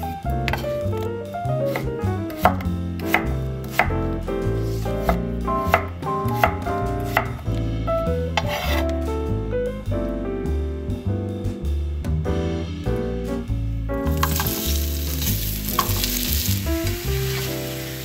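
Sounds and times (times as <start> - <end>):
piano background music: 0.0 - 18.0
knife slicing potato on wood: 0.5 - 4.0, 4.7 - 7.4, 8.4 - 9.0.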